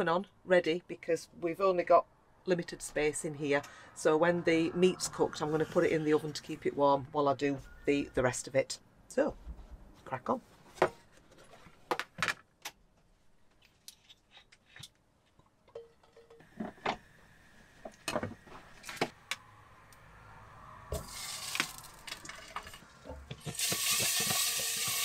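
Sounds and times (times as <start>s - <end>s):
sausages sizzling in a frying pan: 21.0s - 21.7s, 23.4s - 25.0s
pans clicking and knocking: 21.6s - 25.0s.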